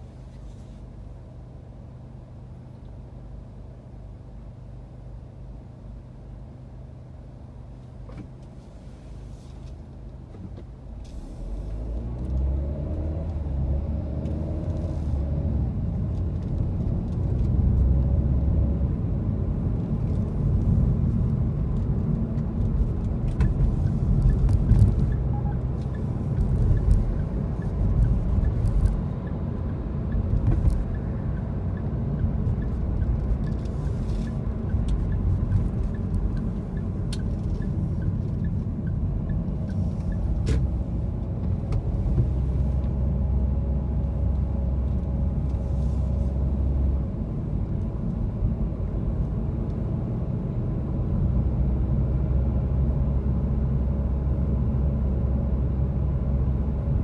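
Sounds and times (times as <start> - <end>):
car engine and tyre rumble: 0.0 - 57.0.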